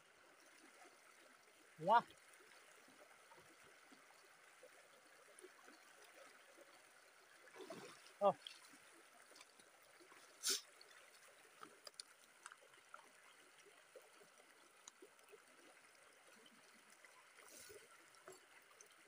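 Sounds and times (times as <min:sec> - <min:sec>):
brief hiss: 0:10.4 - 0:10.6
small ticks: 0:11.6 - 0:13.1, 0:14.6 - 0:15.8.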